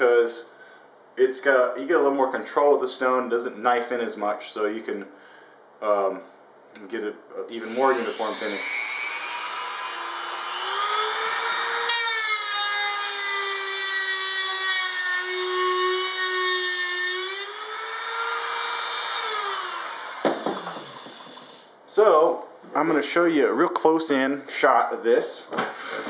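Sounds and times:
rotary tool whining: 7.7 - 21.7.

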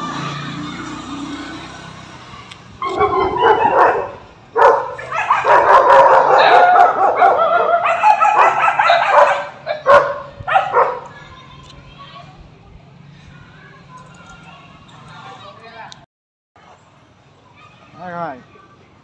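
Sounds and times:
puppy barking and howling: 2.8 - 11.1.

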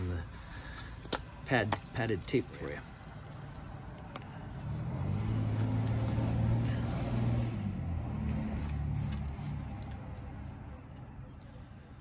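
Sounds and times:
vehicle engine passing: 2.6 - 12.0.

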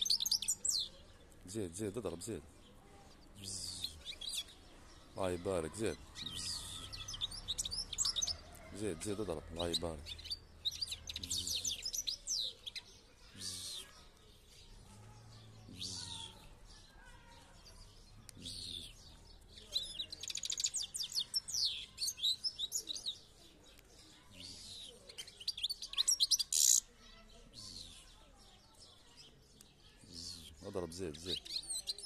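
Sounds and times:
goldfinch singing: 0.0 - 1.0, 3.4 - 8.4, 9.2 - 13.9, 17.6 - 23.3.

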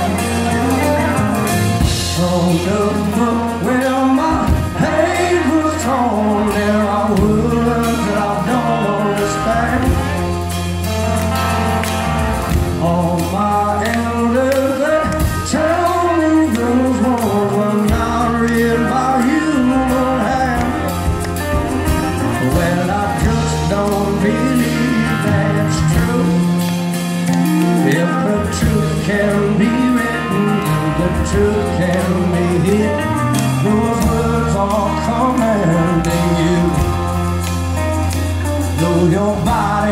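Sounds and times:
man singing: 0.0 - 10.8, 12.3 - 39.9
acoustic guitar: 0.0 - 39.9
low bass: 0.0 - 39.9.

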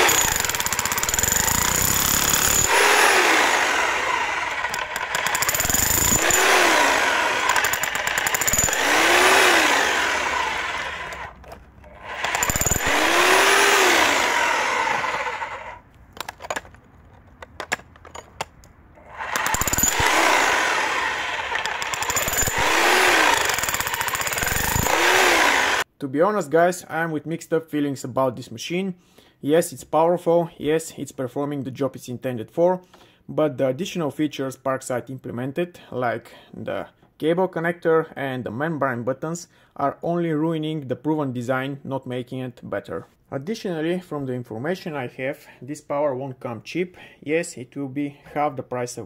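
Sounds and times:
hammer drill chiselling concrete: 0.0 - 15.8, 19.0 - 25.9.

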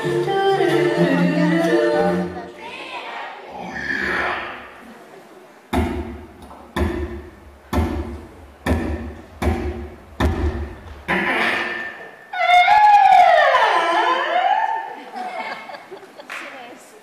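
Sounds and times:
beatboxed kick-drum beats: 5.8 - 11.6.

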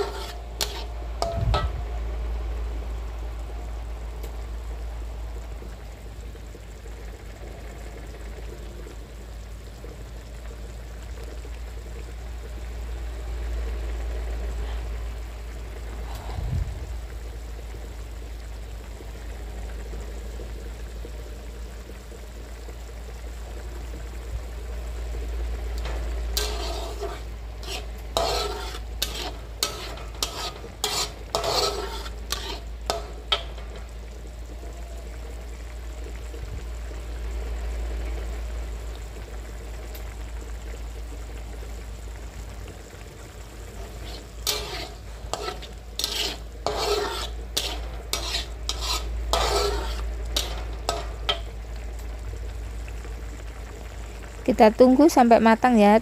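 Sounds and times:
metal spatula scraping a wok: 0.0 - 1.9, 25.8 - 34.0, 43.6 - 51.6
spice paste sizzling in a wok: 0.0 - 56.0.

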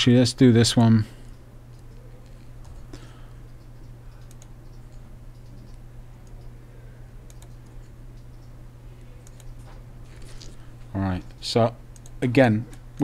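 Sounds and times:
low electrical hum: 0.0 - 13.0
computer mouse clicks: 1.7 - 6.6, 7.2 - 8.6, 9.2 - 9.7, 11.9 - 13.0.

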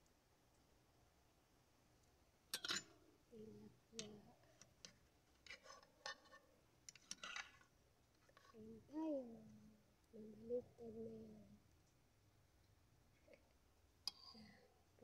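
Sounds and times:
fork clinking against plate: 2.6 - 2.9.

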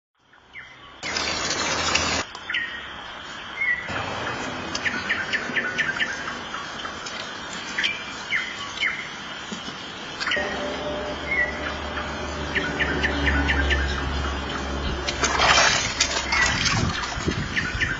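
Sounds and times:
nightingale singing: 0.2 - 1.4, 2.2 - 15.2, 16.2 - 17.9
loud rush of noise: 10.4 - 17.3.

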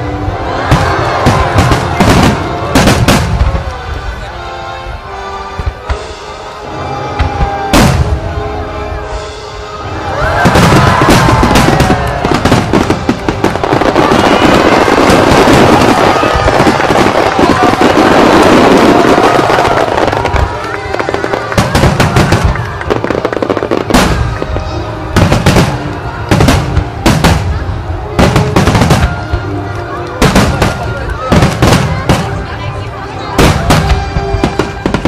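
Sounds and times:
music playing: 0.0 - 35.0
fireworks crackling: 0.2 - 4.2, 9.2 - 35.0
fireworks sharp bangs: 0.6 - 3.7, 7.2 - 8.2, 10.4 - 29.4, 30.2 - 35.0.

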